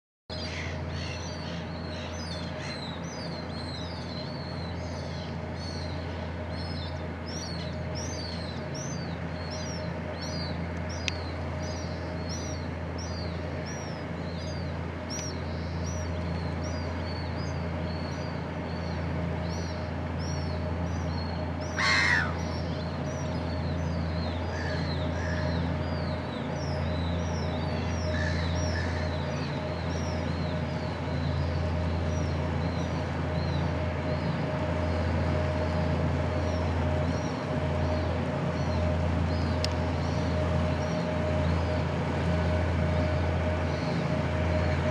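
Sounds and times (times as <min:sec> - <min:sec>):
loud bird call: 0:00.3 - 0:10.6, 0:21.6 - 0:26.3, 0:27.0 - 0:31.0
diesel engine droning: 0:00.3 - 0:44.9
small birds chirping: 0:00.3 - 0:44.9.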